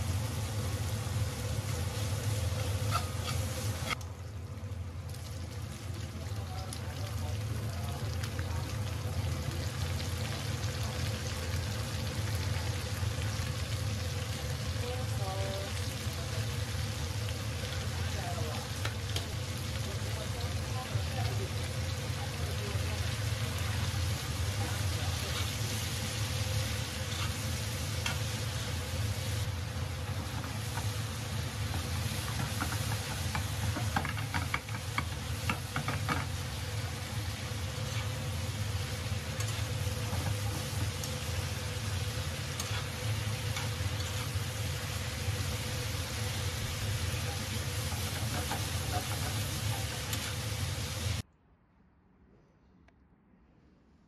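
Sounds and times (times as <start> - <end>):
food sizzling in a pan: 0.0 - 51.2
metal spatula scraping a pan: 2.8 - 4.0, 42.6 - 44.4.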